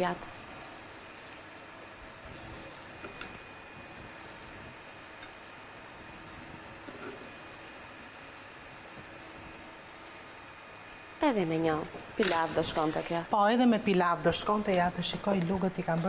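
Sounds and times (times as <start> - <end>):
metal tongs tapping a plate: 12.2 - 12.9.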